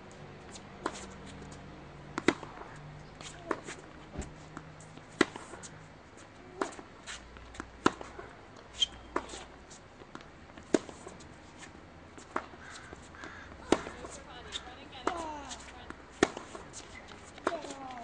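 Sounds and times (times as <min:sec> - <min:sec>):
racket hitting tennis ball: 0:02.2 - 0:03.9, 0:05.1 - 0:05.7, 0:06.4 - 0:18.0
tennis ball bouncing on court: 0:02.2 - 0:05.6, 0:06.4 - 0:11.2, 0:12.2 - 0:18.0.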